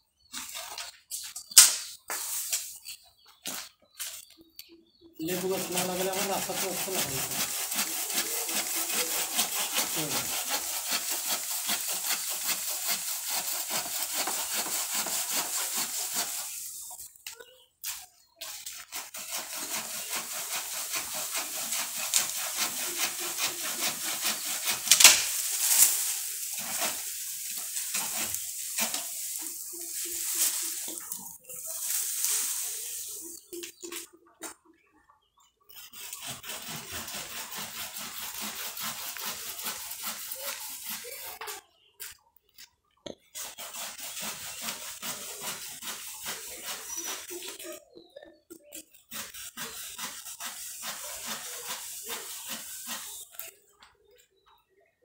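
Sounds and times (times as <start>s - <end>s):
hand saw cutting branches: 5.2s - 16.8s, 17.9s - 33.4s, 35.7s - 41.6s, 43.4s - 47.8s, 48.8s - 53.6s.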